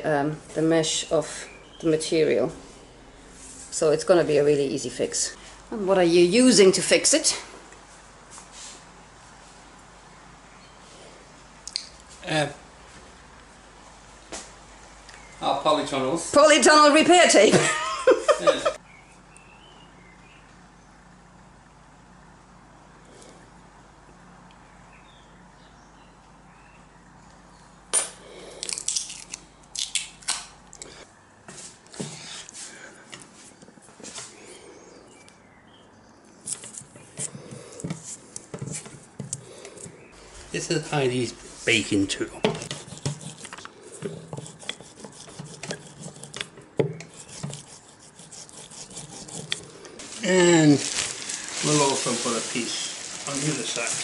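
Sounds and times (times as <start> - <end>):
fabric and tape crackling: 50.0 - 54.0
tape ripping off roll: 50.0 - 54.0.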